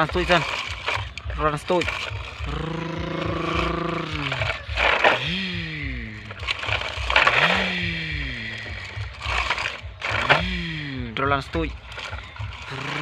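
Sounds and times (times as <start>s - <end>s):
person making engine noises: 0.0s - 13.0s
breathy hissing bursts: 2.4s - 11.2s.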